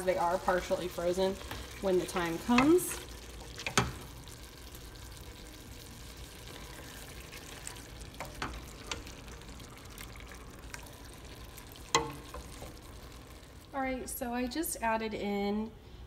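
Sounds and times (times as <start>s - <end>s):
low sizzle: 0.0s - 16.0s
spoon stirring stew in a pot: 1.4s - 5.2s, 6.2s - 13.4s
spoon knocking on a pot: 12.0s - 12.3s.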